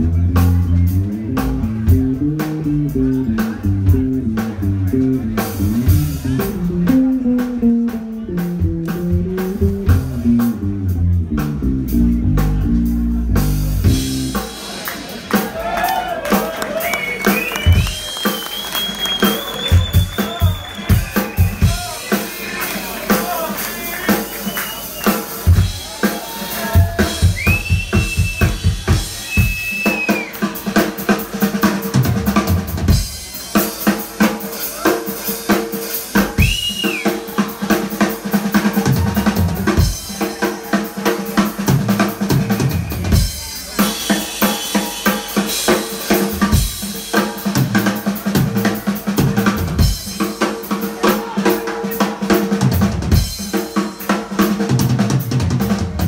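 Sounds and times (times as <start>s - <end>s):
electric guitar lead notes: 0.0s - 14.5s
drum kit: 0.0s - 56.0s
live blues band: 0.0s - 56.0s.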